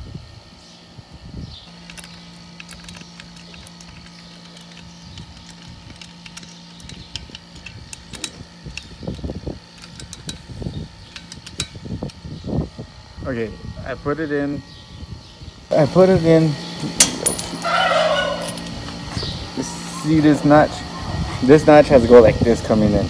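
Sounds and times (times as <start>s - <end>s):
small metal parts clicking: 1.8s - 12.2s, 17.0s - 17.7s.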